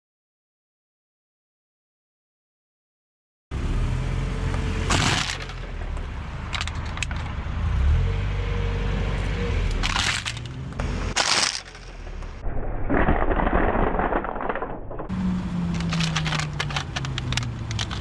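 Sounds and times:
car engine humming: 3.5 - 12.4, 15.1 - 18.0
tyre crushing drink cans: 4.9 - 5.8, 9.8 - 14.9, 15.6 - 18.0.

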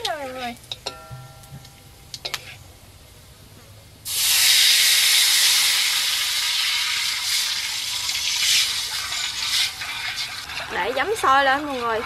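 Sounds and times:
vinegar hissing in hot oil: 4.0 - 12.0.

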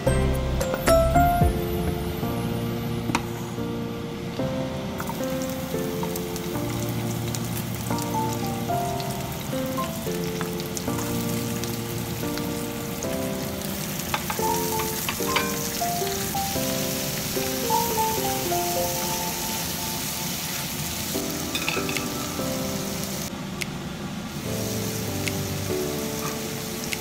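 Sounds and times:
background music: 0.0 - 23.3
vegetables sizzling in oil: 5.0 - 23.3, 24.3 - 27.0.

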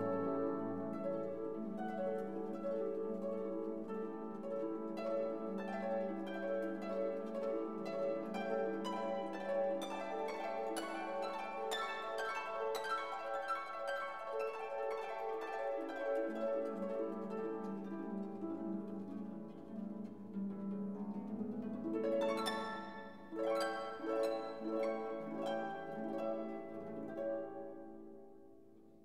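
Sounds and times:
plucked string notes: 0.0 - 2.9.

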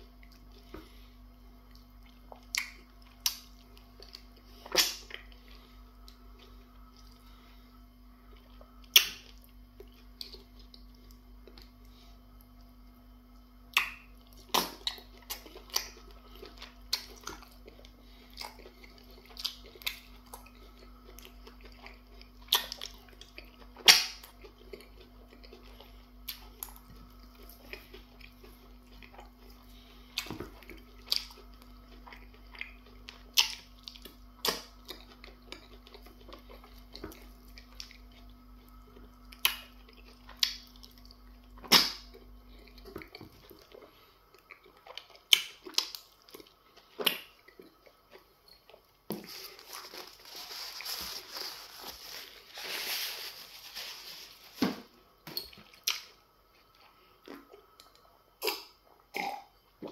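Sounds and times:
wet chewing and mouth smacks: 1.7 - 7.3, 13.7 - 29.6, 30.2 - 49.2, 55.4 - 59.9.

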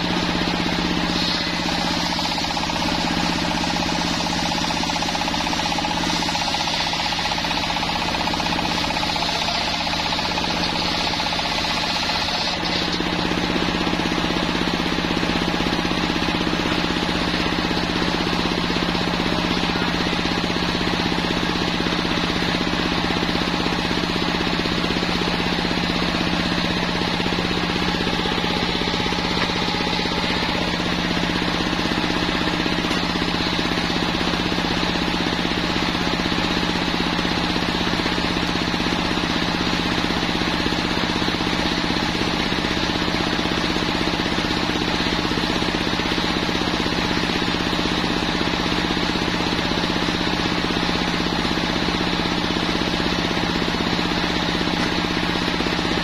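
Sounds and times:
circular sawmill cutting log: 0.0 - 56.0.

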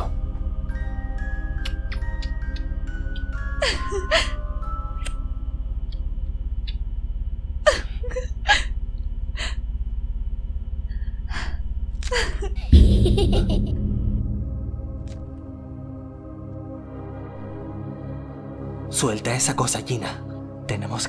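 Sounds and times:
low pulsing film score drone: 0.0 - 21.0
loud low music swell: 12.7 - 21.0.

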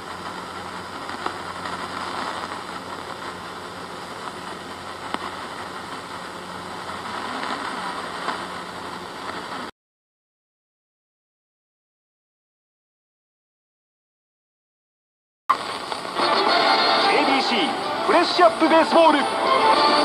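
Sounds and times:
radio static and hiss: 0.0 - 9.7, 15.5 - 20.0.

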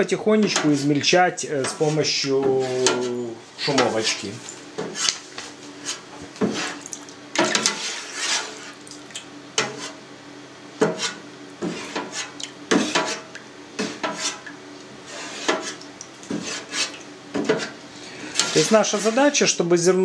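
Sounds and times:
skimmer scraping metal pan: 0.4 - 5.2, 7.4 - 8.8, 10.8 - 14.4, 15.0 - 19.6.

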